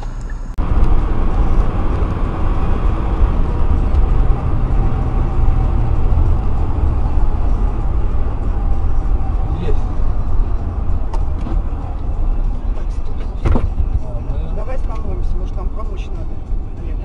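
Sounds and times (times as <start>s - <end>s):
road and engine rumble in car: 0.0s - 17.0s.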